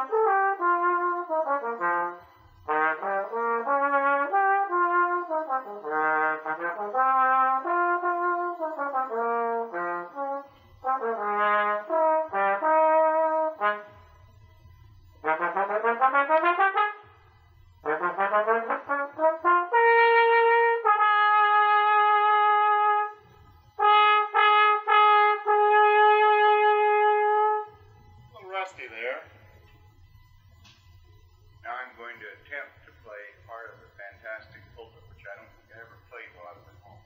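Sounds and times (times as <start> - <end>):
trombone melody: 0.0 - 27.9.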